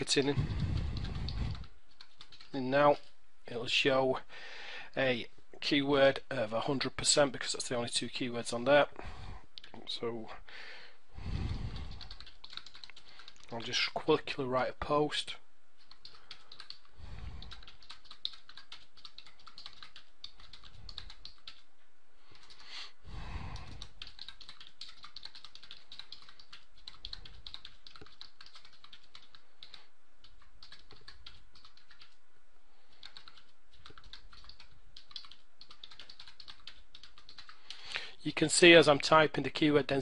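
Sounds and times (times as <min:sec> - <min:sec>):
typing on computer keyboard: 0:00.0 - 0:02.6, 0:11.7 - 0:13.6, 0:15.8 - 0:21.7, 0:23.5 - 0:32.2, 0:32.9 - 0:37.9.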